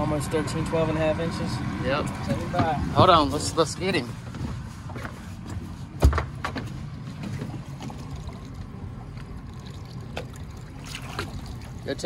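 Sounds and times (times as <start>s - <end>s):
water sloshing against hull: 4.2s - 12.0s.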